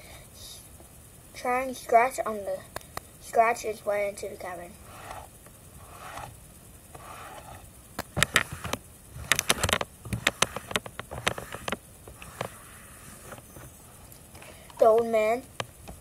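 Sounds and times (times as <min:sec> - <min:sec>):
fingernails scratching and tapping: 0:04.8 - 0:14.2.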